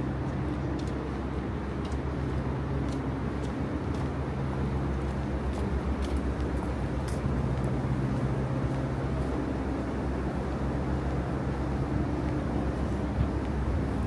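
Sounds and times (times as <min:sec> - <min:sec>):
low mechanical hum: 0:00.0 - 0:14.0
outdoor city noise: 0:00.0 - 0:14.0
faint light ticks: 0:00.2 - 0:08.8, 0:13.2 - 0:13.6.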